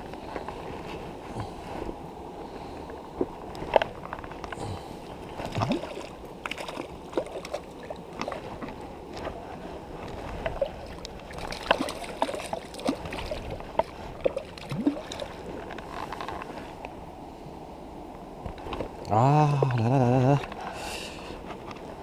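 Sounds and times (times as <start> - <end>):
stream rushing over stones: 4.4 - 15.6.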